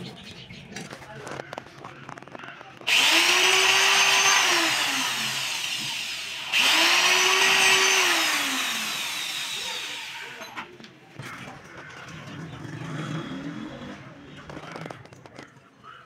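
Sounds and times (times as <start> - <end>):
electric drill whining: 2.9 - 10.6.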